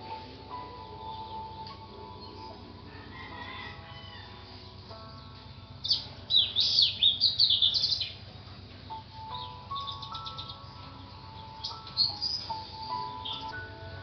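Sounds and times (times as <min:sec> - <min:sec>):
soft background music: 0:00.0 - 0:14.0
bird chirping rapidly: 0:05.8 - 0:08.2, 0:09.3 - 0:13.5.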